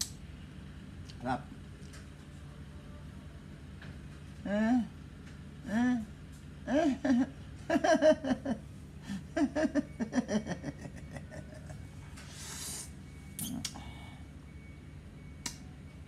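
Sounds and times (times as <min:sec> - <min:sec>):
man humming: 0:04.4 - 0:04.9, 0:05.6 - 0:06.1
mouth clicks: 0:13.4 - 0:13.8.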